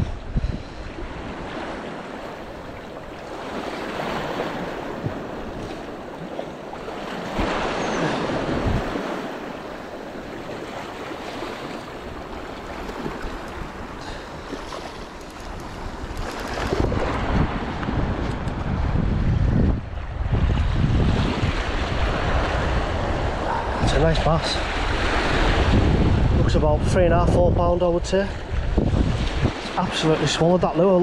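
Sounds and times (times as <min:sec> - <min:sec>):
wind buffeting microphone: 0:00.0 - 0:30.8
waves washing over rocks: 0:01.1 - 0:19.0.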